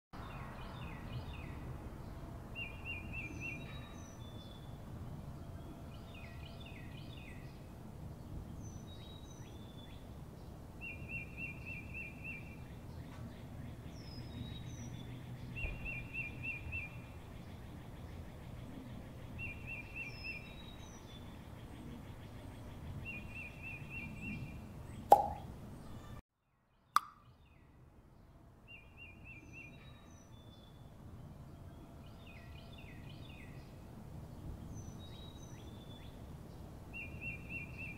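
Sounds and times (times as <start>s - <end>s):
high bird chirps: 25.1s - 26.2s.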